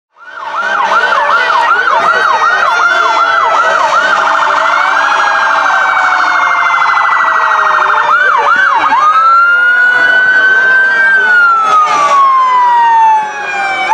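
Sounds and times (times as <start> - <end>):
siren yelping and warbling: 0.1 - 13.9
slower siren tones: 0.1 - 13.9.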